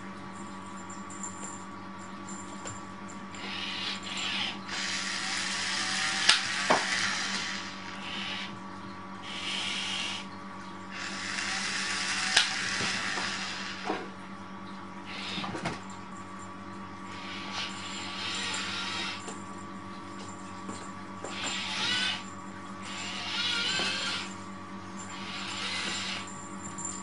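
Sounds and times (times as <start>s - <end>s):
small electric motors whirring: 3.3s - 8.6s, 9.2s - 10.3s, 10.9s - 14.1s, 15.1s - 15.7s, 17.1s - 19.4s, 21.2s - 24.4s, 25.0s - 27.0s.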